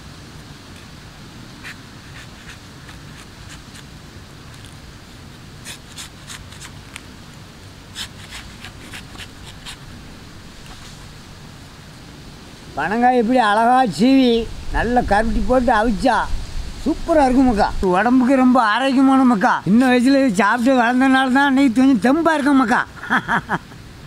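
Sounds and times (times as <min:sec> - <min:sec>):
knife cutting on wooden block: 0:05.6 - 0:06.8, 0:08.0 - 0:09.8.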